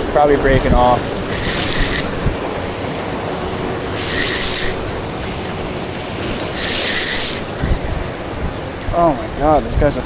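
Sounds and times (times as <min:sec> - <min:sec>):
surf washing over rocks: 0:00.0 - 0:10.0
spinning reel burst: 0:01.3 - 0:02.2, 0:03.9 - 0:04.8, 0:06.6 - 0:08.1.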